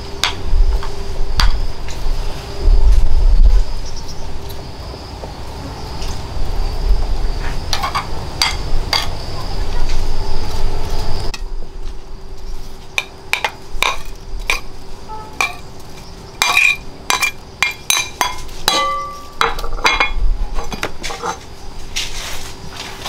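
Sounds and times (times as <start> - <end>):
low rumble: 0.0 - 5.1
clinks and knocks of hard objects: 7.7 - 9.2, 13.0 - 14.7, 15.4 - 21.5.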